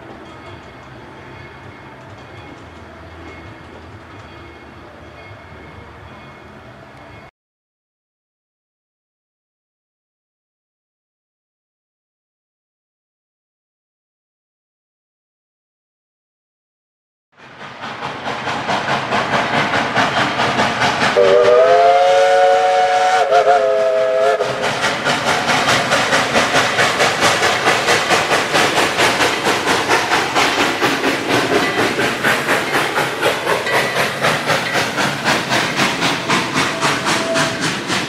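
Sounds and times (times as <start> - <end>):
steam locomotive chime whistle: 0.0 - 7.3, 21.1 - 25.7, 27.0 - 38.0
steam engine chugging: 17.4 - 38.0.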